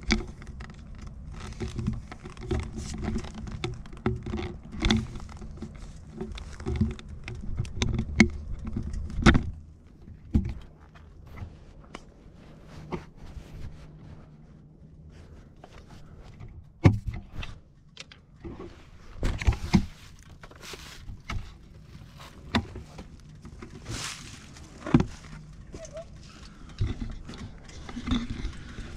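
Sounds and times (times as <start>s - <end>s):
camera handling knocks and rustles: 19.2s - 26.1s.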